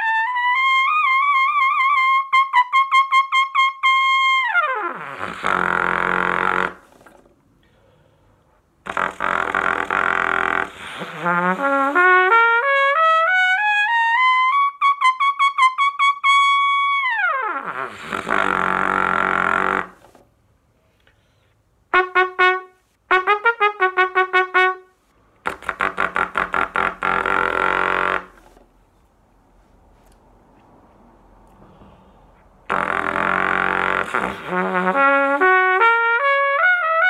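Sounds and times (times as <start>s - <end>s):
trumpet playing notes: 0.0s - 7.0s, 8.8s - 20.0s, 21.9s - 28.5s, 32.7s - 37.0s.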